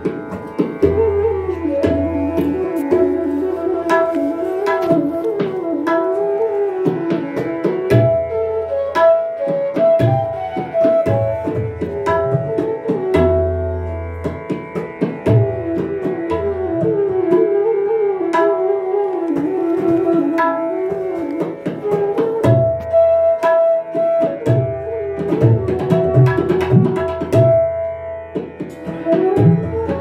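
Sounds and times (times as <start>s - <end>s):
crisp tabla strokes: 0.0s - 8.8s, 19.0s - 24.6s
bamboo flute melody: 0.0s - 30.0s.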